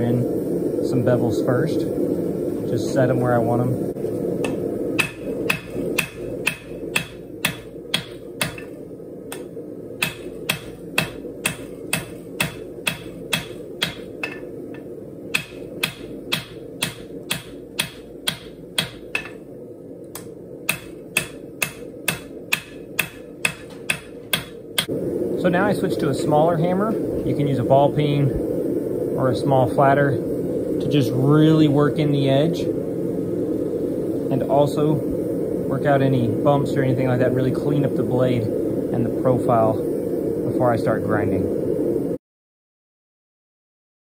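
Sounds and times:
steady hum: 0.0 - 42.2
hammer striking blade on anvil: 4.4 - 14.5, 15.3 - 19.4, 20.2 - 24.9.

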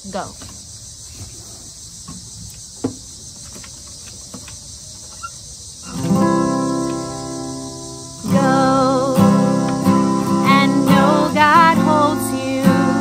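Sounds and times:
crickets chirping: 0.0 - 13.0
acoustic guitar chord strummed: 5.9 - 13.0.

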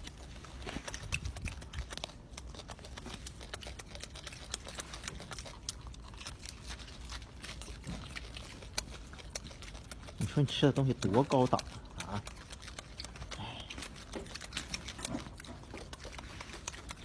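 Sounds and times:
monkey chewing wet smacks: 0.0 - 17.0.

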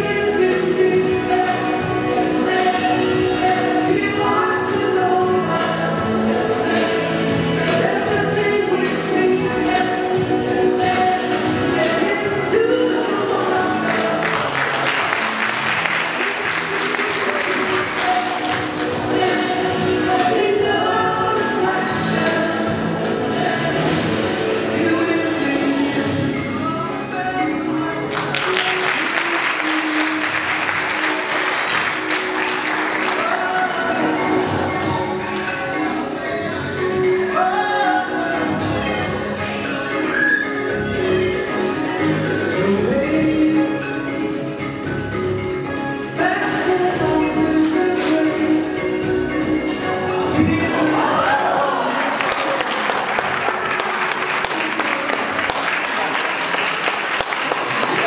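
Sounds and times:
background music: 0.0 - 58.0
audience applauding: 13.8 - 19.2, 28.1 - 35.8, 50.8 - 58.0.

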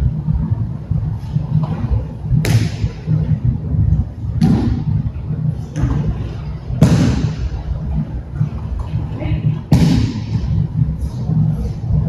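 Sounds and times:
low rumble: 0.0 - 12.0
bodies slapping on mats: 2.4 - 3.0, 6.8 - 7.5.

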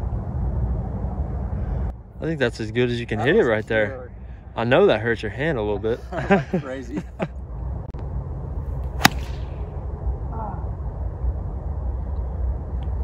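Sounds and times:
wind rumble on microphone: 0.0 - 3.1, 7.4 - 13.0
golf club striking ball: 9.0 - 9.7.

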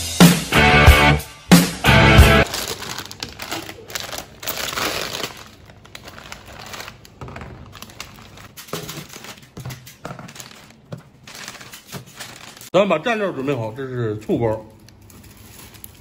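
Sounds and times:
plastic bag crinkling: 2.4 - 12.8, 14.3 - 16.0.

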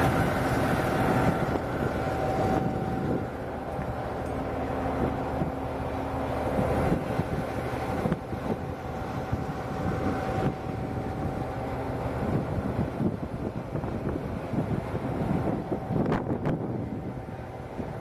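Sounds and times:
bulldozer diesel engine running: 0.0 - 18.0.

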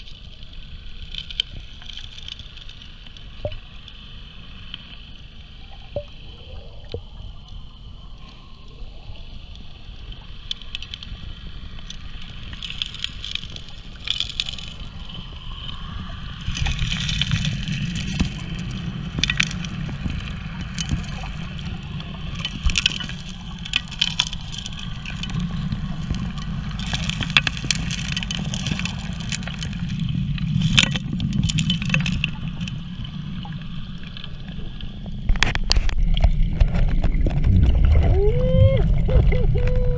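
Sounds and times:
rushing water: 0.0 - 39.9
underwater dredge drone: 0.0 - 39.9
gravel clicking and knocking: 11.8 - 15.3, 16.1 - 33.3, 35.1 - 39.9.

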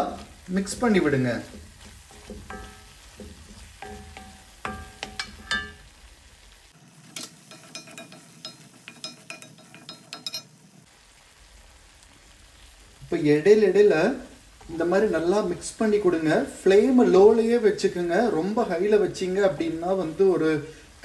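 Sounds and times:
paste sizzling in a pan: 0.0 - 21.0
spoon clinking against pan: 1.4 - 5.9, 7.2 - 10.5.

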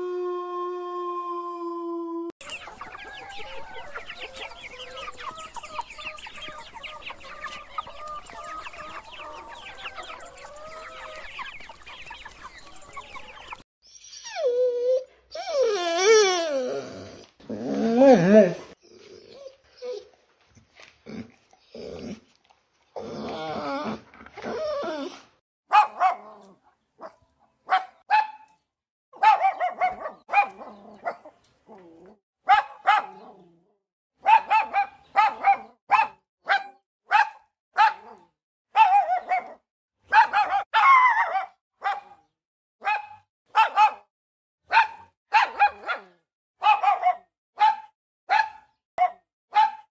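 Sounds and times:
dog barking sharply: 25.7 - 26.2, 27.0 - 28.5, 29.2 - 31.2, 32.5 - 33.2, 34.2 - 38.2, 38.8 - 42.2, 42.8 - 44.1, 44.7 - 49.9.

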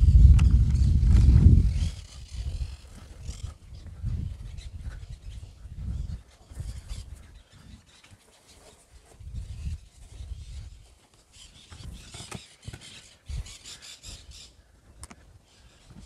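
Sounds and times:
wind buffeting microphone: 0.0 - 7.8, 9.0 - 10.9.

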